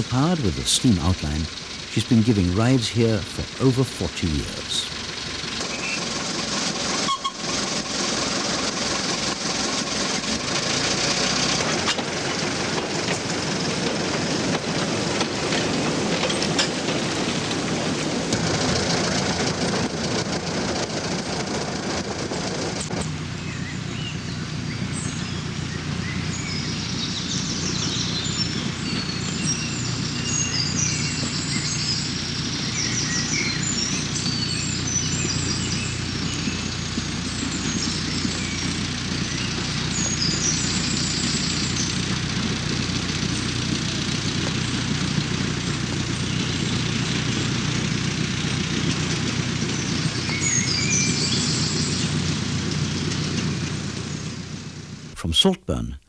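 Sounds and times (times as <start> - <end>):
birds chirping: 0.0 - 6.1, 23.4 - 42.0
diesel locomotive rumbling: 0.0 - 55.9.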